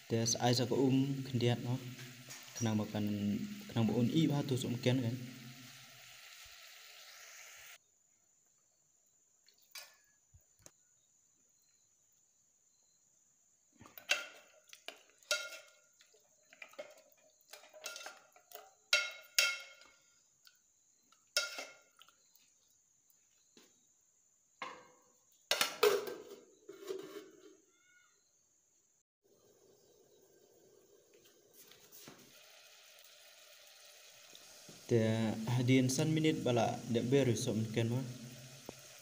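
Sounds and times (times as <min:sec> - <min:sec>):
metal clatter on pot: 0:13.8 - 0:20.0, 0:21.3 - 0:21.9
metal spoon scraping a pot: 0:14.0 - 0:15.8, 0:26.7 - 0:27.6.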